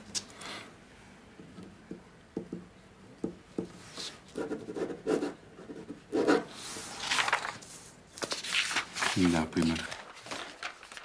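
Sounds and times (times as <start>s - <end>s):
rubbing and rustling of small objects: 6.5s - 11.0s.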